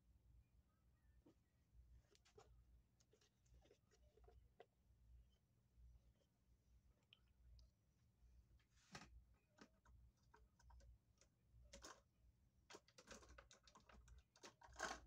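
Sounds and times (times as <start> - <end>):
faint low hum: 0.0 - 15.0
faint clicks and taps: 8.9 - 12.1.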